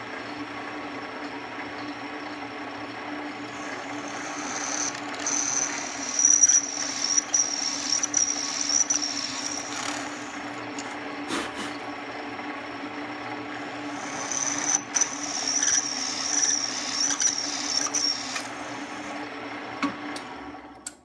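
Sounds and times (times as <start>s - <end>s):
drill press motor humming: 0.0s - 21.0s
drill bit squealing in metal: 3.6s - 10.4s, 13.7s - 18.5s.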